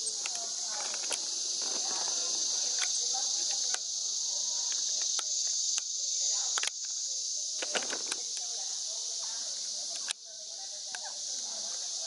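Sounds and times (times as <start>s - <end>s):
insects chorus: 0.0s - 12.0s
sharp clicks: 6.5s - 7.0s.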